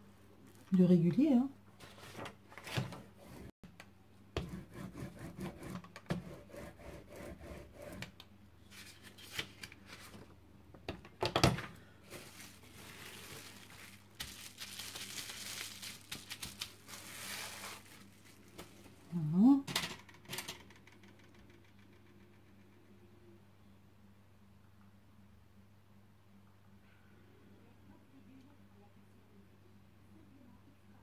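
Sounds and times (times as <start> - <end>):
paper and plastic rustling: 1.8 - 3.1, 8.6 - 10.4, 11.7 - 19.1
bubble wrap crinkling: 12.0 - 19.1.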